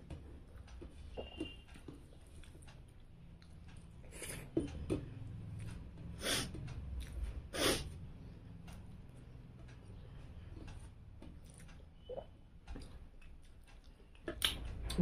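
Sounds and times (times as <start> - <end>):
person sniffing: 6.2 - 6.6, 7.5 - 7.9.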